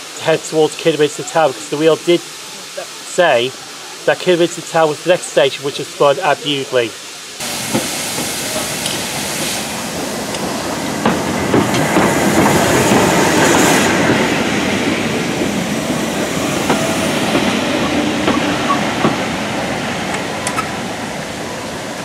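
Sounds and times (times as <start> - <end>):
steam locomotive running past: 7.4 - 22.0
wheels clicking over rail joints: 10.3 - 13.2, 16.6 - 19.3, 20.0 - 20.8.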